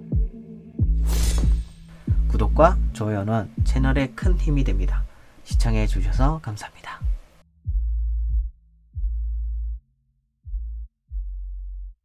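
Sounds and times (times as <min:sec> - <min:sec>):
deep electronic bass notes: 0:00.0 - 0:03.0, 0:03.6 - 0:06.4, 0:07.5 - 0:12.0.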